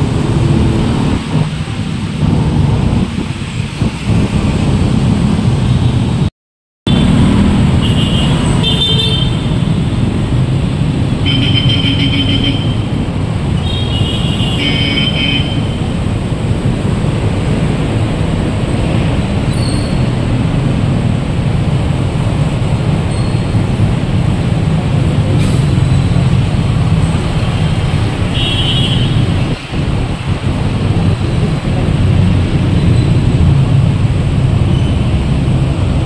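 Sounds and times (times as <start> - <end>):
traffic engine rumble: 0.0 - 6.3, 6.9 - 36.0
vehicle horn toots: 7.8 - 9.6, 11.2 - 12.9, 13.6 - 15.7, 28.3 - 29.4.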